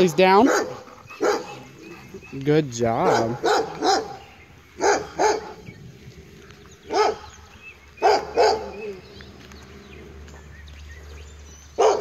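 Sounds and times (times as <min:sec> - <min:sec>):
dog barking: 0:00.0 - 0:01.6, 0:03.0 - 0:04.2, 0:04.8 - 0:05.6, 0:06.9 - 0:07.3, 0:08.0 - 0:08.9, 0:11.8 - 0:12.0.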